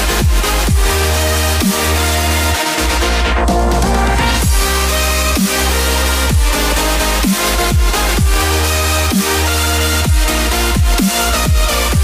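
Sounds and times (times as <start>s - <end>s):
deep held bass: 0.0s - 12.0s
booming kick drums: 0.1s - 1.1s, 4.4s - 4.8s, 6.3s - 8.6s, 10.1s - 12.0s.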